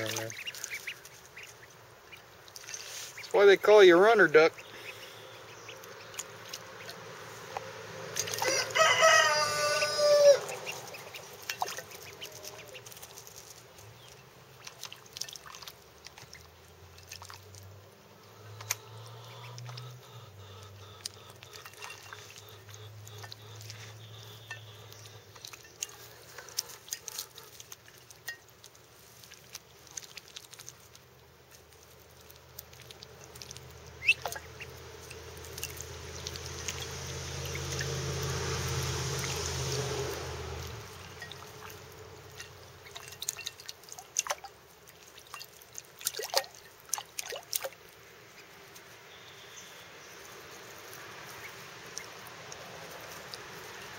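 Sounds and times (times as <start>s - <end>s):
ducklings splashing in water: 0.0s - 53.9s
rooster crowing: 8.3s - 10.8s.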